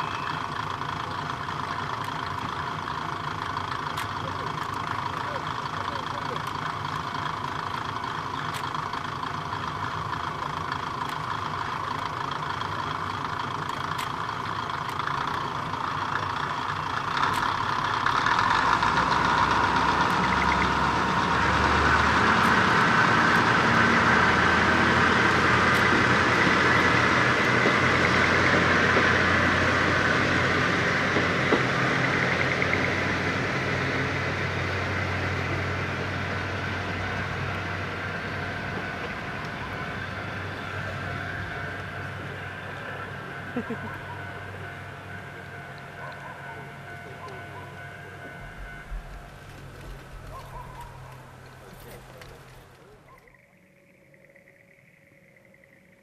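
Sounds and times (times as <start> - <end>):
diesel railcar engine idling and revving: 0.0 - 53.4.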